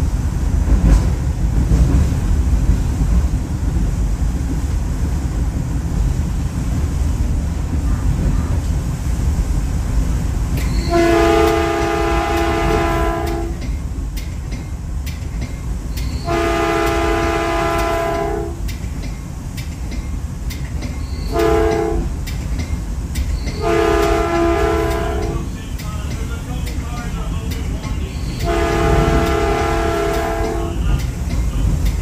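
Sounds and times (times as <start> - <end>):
moving train rumble: 0.0 - 32.0
train horn: 10.7 - 13.6, 16.2 - 18.6, 21.3 - 22.1, 23.6 - 25.5, 28.4 - 31.0.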